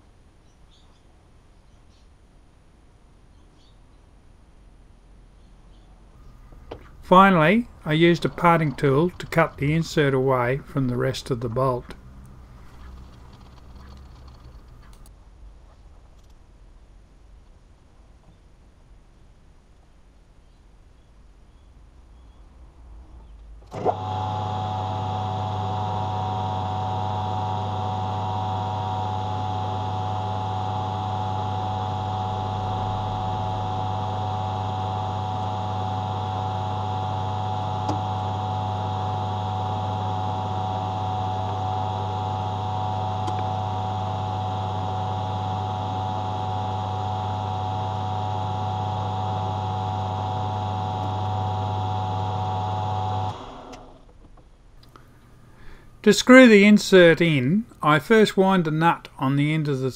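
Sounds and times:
metal lathe motor hum: 6.2 - 15.1, 23.7 - 54.0.

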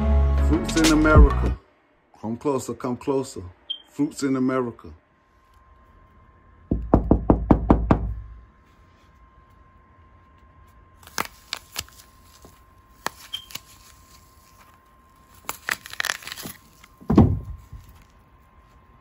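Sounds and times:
apple crunching: 11.0 - 18.2.

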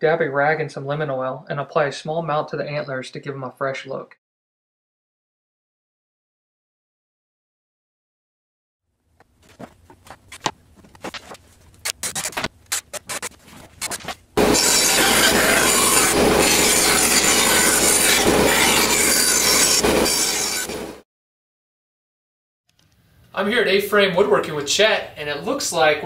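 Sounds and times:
band saw cutting wood: 11.8 - 21.0.

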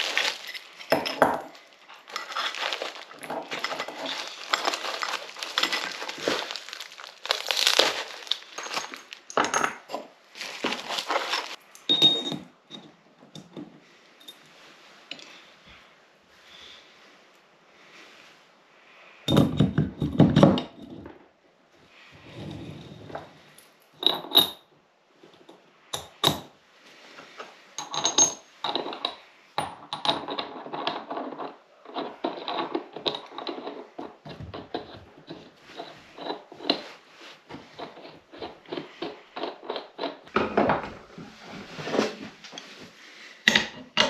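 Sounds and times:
steel parts clinking: 0.0 - 12.8.

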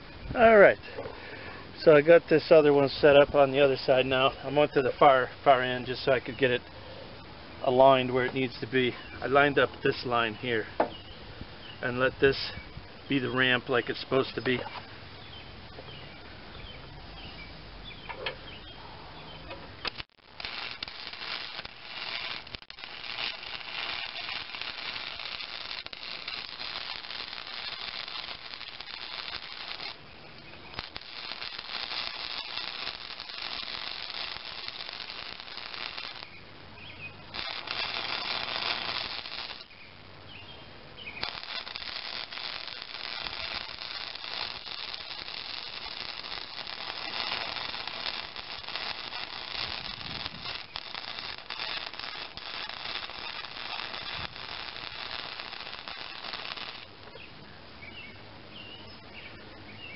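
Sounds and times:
arc welding crackle: 0.0 - 6.7, 19.8 - 57.1.

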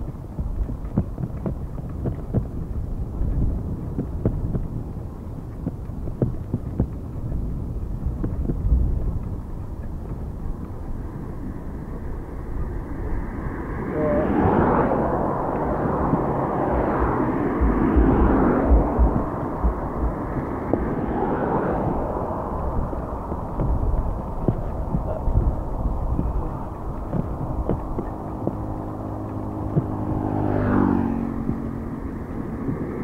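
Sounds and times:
cars passing on road: 0.0 - 33.0
wind rumble on microphone: 0.0 - 33.0.

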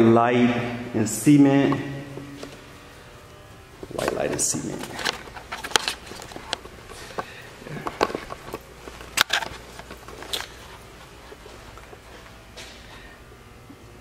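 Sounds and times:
footsteps on cement floor: 3.8 - 13.2.

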